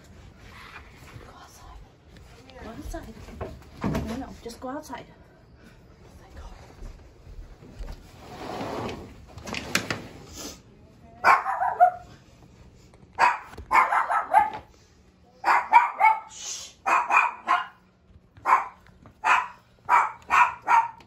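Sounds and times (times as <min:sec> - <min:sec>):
dog barking: 0:11.2 - 0:12.1, 0:13.2 - 0:14.7, 0:15.4 - 0:21.0.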